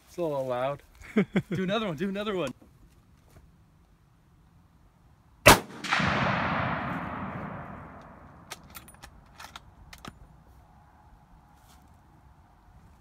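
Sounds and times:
explosion boom echoing: 0:05.5 - 0:08.5
rifle shot: 0:05.5 - 0:08.7.

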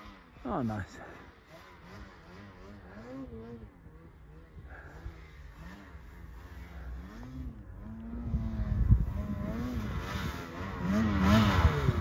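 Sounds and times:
snowmobile engine revving: 0:00.0 - 0:12.0.

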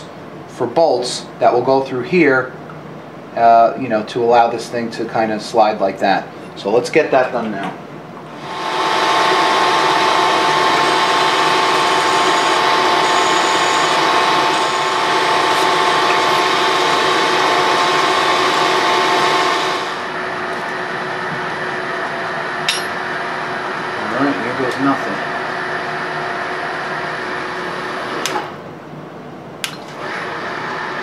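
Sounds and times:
drill whirring into metal: 0:08.4 - 0:20.7.

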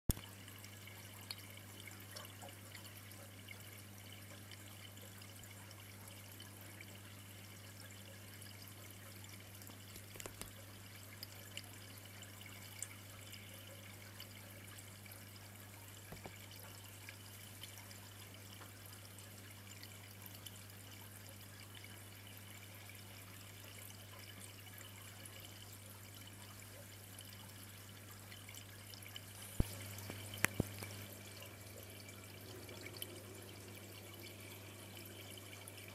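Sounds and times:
aquarium water trickling: 0:00.1 - 0:35.9.

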